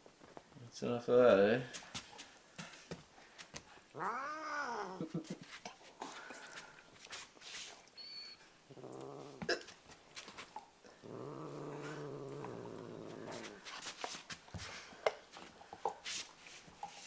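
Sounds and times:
cat growling: 3.9 - 5.1, 8.7 - 9.7, 10.8 - 13.6.

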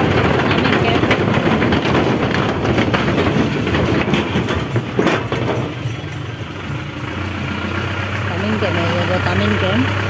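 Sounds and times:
fast rattling and clattering: 0.0 - 9.6
vehicle engine and road rumble: 0.0 - 10.0.

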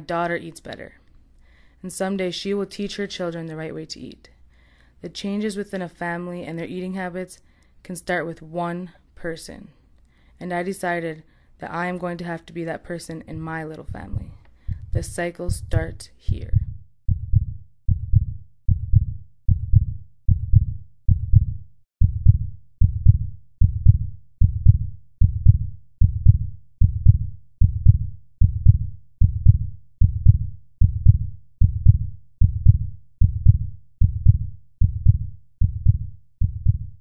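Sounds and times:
heartbeat double thumps: 13.3 - 37.0.

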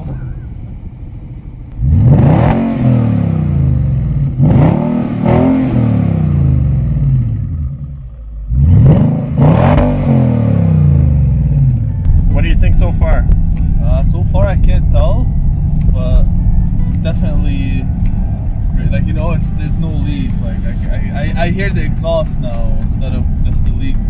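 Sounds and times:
car engine revving: 0.0 - 24.0.

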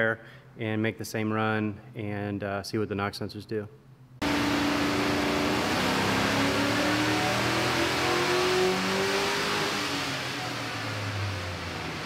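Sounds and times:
engine revving at full throttle: 4.2 - 12.0.

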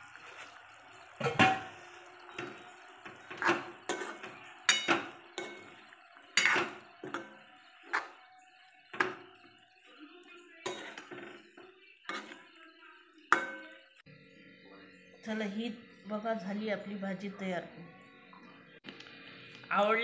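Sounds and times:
spatula scraping metal pan: 1.3 - 9.5, 10.6 - 12.6.

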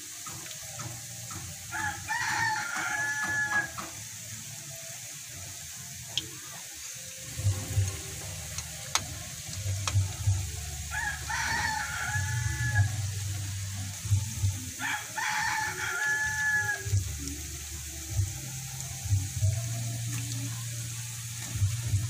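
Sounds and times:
food deep-frying in oil: 0.0 - 22.0
rooster crowing: 1.7 - 4.0, 10.8 - 13.4, 14.8 - 17.0
spatula clicking against pan: 9.8 - 10.0.

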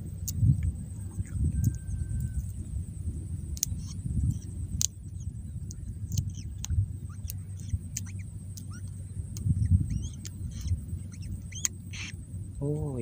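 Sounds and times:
low handling rumble: 0.0 - 13.0
chick peeping inside egg: 3.6 - 12.1
sharp clicks: 5.6 - 10.7, 11.5 - 12.1.

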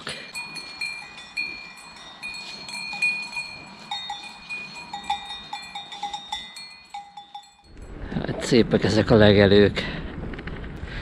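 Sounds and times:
cowbells clanking: 0.0 - 7.8.

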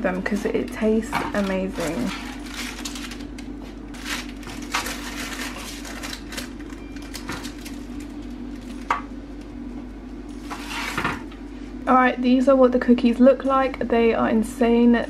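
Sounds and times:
low hum: 0.0 - 15.0
spatula scraping baking tray: 10.5 - 11.1.

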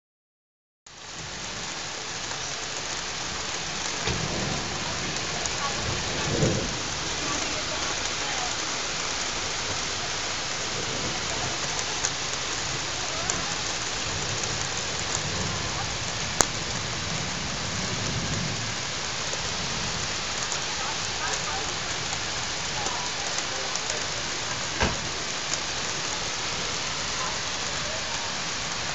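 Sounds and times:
heavy rain falling: 0.9 - 28.9
low thunder rumbles: 3.2 - 28.9.

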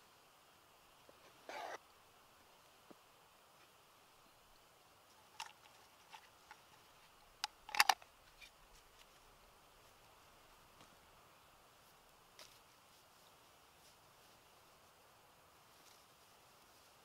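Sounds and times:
crisp clicks: 7.4 - 9.1.

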